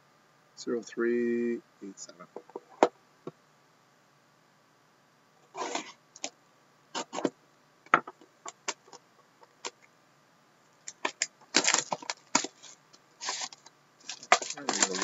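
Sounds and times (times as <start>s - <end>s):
plastic wrap crinkling: 10.9s - 15.0s.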